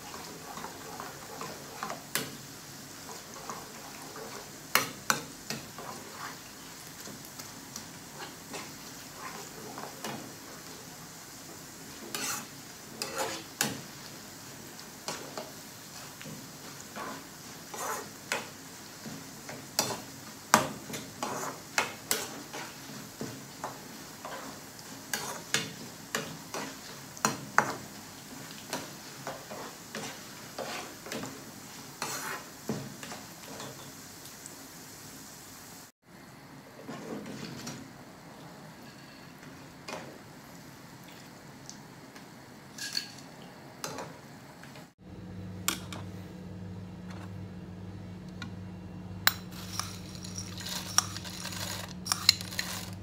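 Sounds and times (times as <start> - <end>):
low sizzle of frying: 0.0 - 53.0
metal spoon scraping frying pan: 5.1 - 6.5, 12.0 - 13.7, 16.9 - 18.5, 21.2 - 22.8, 23.6 - 25.6, 29.2 - 31.2, 32.0 - 32.5, 49.3 - 53.0.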